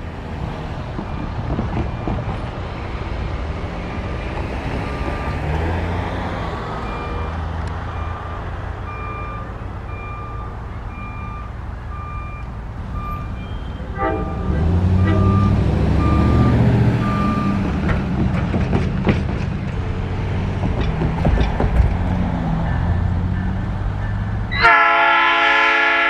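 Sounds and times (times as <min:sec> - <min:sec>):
diesel locomotive rumble: 0:00.0 - 0:26.0
crossing warning bell ringing: 0:06.8 - 0:17.8, 0:22.4 - 0:26.0.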